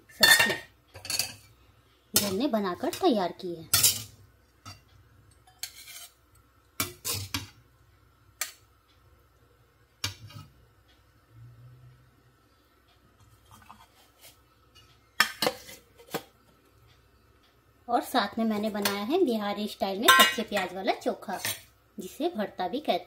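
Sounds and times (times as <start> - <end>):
metal spatula scraping metal pot: 5.5 - 6.2, 6.8 - 7.5.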